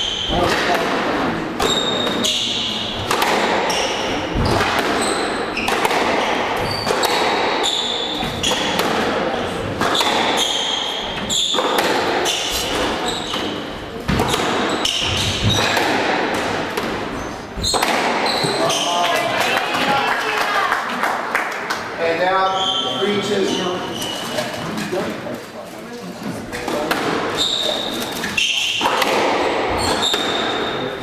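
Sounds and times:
squash ball strikes echoing: 0:00.0 - 0:18.8, 0:26.6 - 0:27.4, 0:28.0 - 0:31.0
shoes squeaking on wooden floor: 0:01.6 - 0:08.8, 0:09.4 - 0:15.9, 0:17.0 - 0:19.1, 0:22.3 - 0:25.0, 0:26.2 - 0:28.9, 0:29.6 - 0:31.0.

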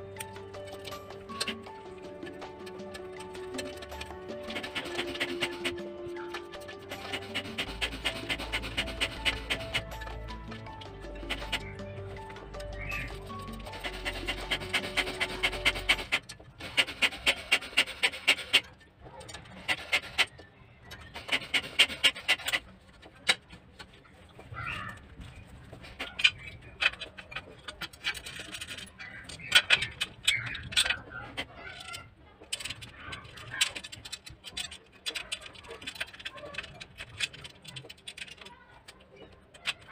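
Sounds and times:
music: 0:00.0 - 0:17.0
metal bracket parts knocking: 0:00.0 - 0:23.9.

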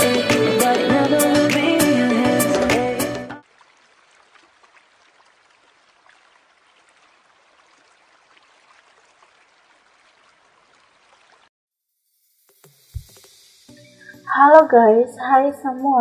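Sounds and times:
small crackles: 0:03.4 - 0:11.5.

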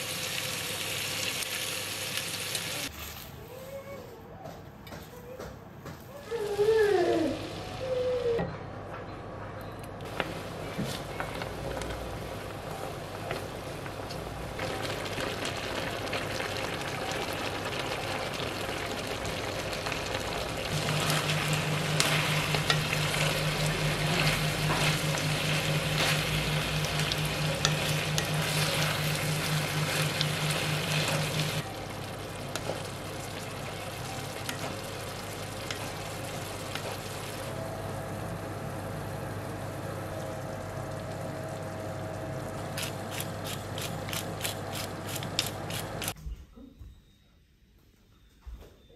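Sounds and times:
pork sizzling in a skillet: 0:00.0 - 0:03.3, 0:14.6 - 0:37.5, 0:42.7 - 0:46.2
low steady hum: 0:18.4 - 0:47.0.

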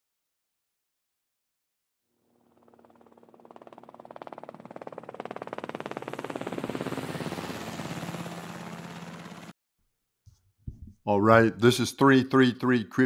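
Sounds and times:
rapid pulsing buzz: 0:02.3 - 0:09.5.

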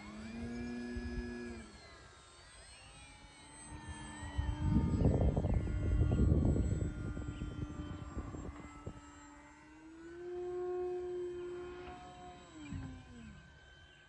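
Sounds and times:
model plane motor buzzing drone: 0:00.0 - 0:14.0.

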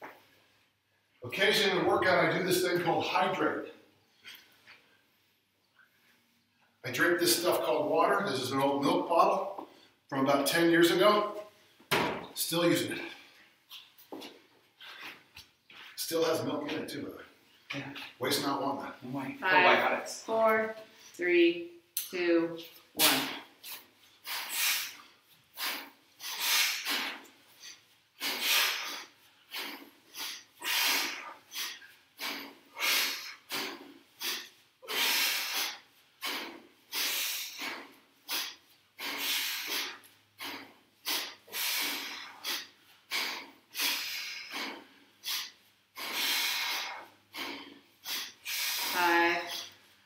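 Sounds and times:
hard rhythmic breathing: 0:12.8 - 0:16.5, 0:22.6 - 0:50.0.

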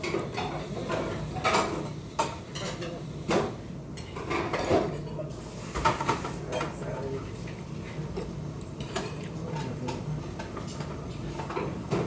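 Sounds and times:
cutlery clinking against bowl: 0:00.0 - 0:05.2, 0:08.1 - 0:12.0.

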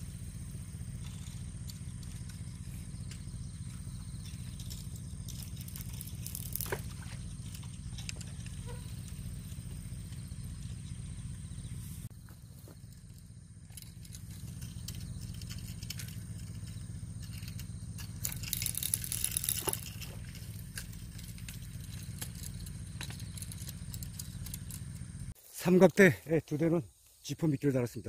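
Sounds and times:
steady low hum: 0:00.0 - 0:25.5
brief rustling rattle: 0:01.0 - 0:11.0, 0:12.7 - 0:25.1.

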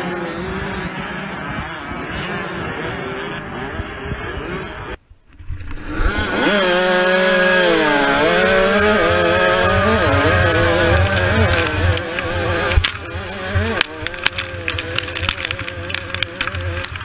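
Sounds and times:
dirt bike engines: 0:00.0 - 0:17.0
two-stroke engine revving: 0:05.7 - 0:17.0.

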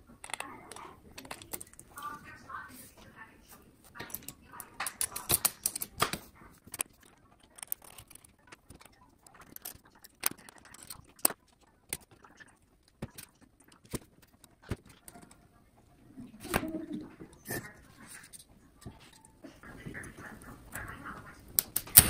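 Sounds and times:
small metal parts clinking: 0:00.2 - 0:01.8, 0:06.7 - 0:12.3.

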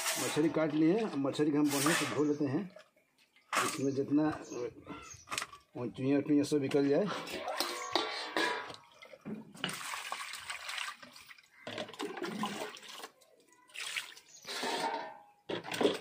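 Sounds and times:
water sloshing and splashing: 0:06.6 - 0:16.0.

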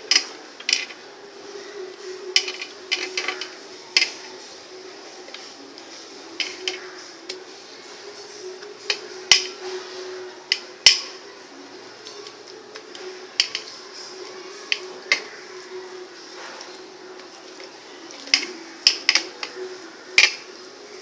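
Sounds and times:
dishes and utensils clinking: 0:00.0 - 0:01.0, 0:02.2 - 0:04.4, 0:06.3 - 0:07.5, 0:08.3 - 0:11.2, 0:12.0 - 0:15.4, 0:16.3 - 0:20.5.

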